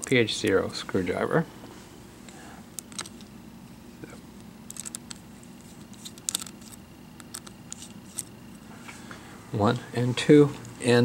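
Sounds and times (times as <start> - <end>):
screwdriver clicking in screw: 5.9 - 8.3.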